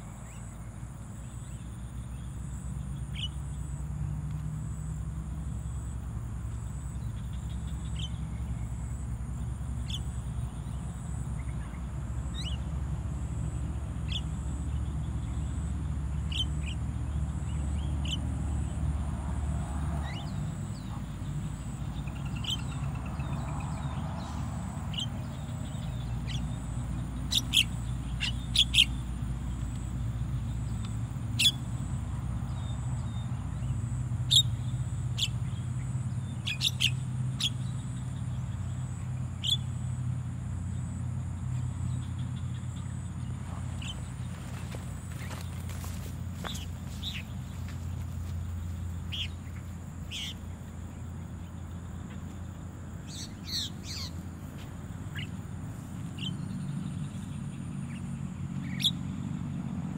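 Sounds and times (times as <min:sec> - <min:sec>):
birds giving sharp calls: 0:20.0 - 0:32.0, 0:33.8 - 0:39.9, 0:42.5 - 0:51.1, 0:53.0 - 0:55.4.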